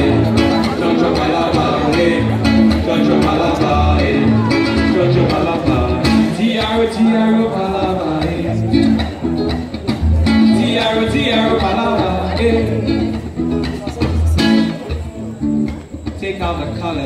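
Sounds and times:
person singing: 0.0s - 9.6s, 10.2s - 13.3s
acoustic guitar: 0.0s - 17.0s.

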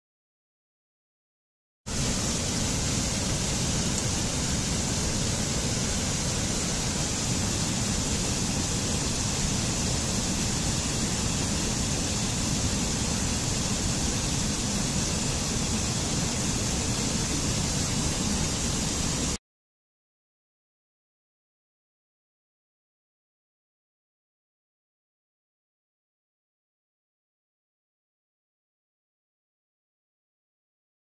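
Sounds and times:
waterfall rushing: 1.9s - 19.4s.

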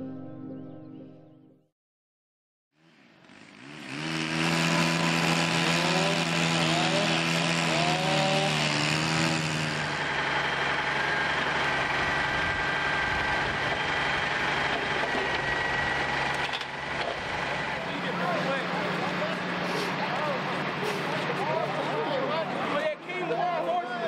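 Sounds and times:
pole saw engine running: 2.8s - 23.4s
truck engine running: 2.9s - 23.7s.

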